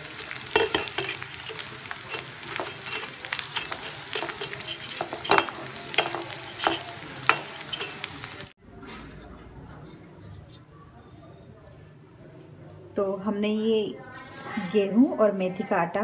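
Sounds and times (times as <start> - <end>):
gum sizzling in hot oil: 0.0 - 8.6
metal skimmer scraping a pan: 0.5 - 8.2.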